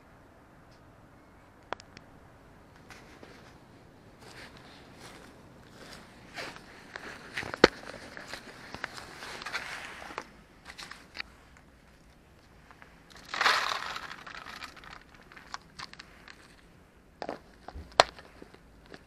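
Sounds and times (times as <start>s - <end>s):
small clicks and rustles: 6.5s - 19.0s
dry kibble pouring: 13.1s - 16.5s.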